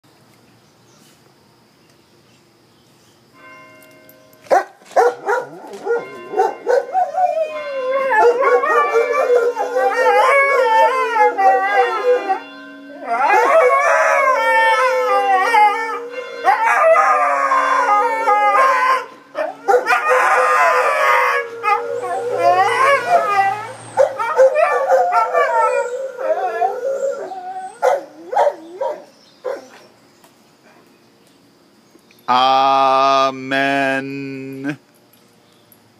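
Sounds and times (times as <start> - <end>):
dogs howling: 4.5 - 29.9.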